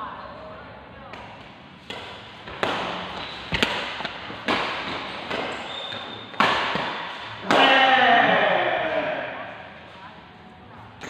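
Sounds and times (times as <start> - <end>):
rackets hitting shuttlecock: 1.1 - 7.9.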